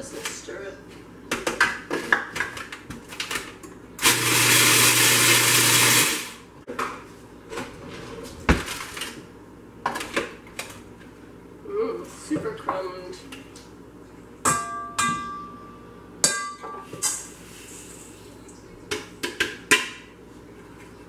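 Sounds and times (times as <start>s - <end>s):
food processor motor hum: 4.0s - 6.4s.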